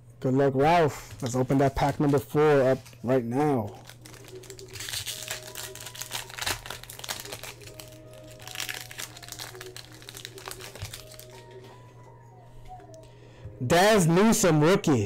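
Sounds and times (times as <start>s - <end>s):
quiet background music: 0.0s - 15.0s
foil wrapper crinkling and tearing: 1.1s - 11.7s.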